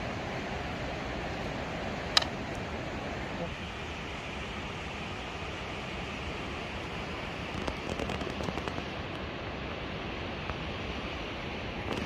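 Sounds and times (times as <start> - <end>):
crackling clicks: 7.5 - 8.9.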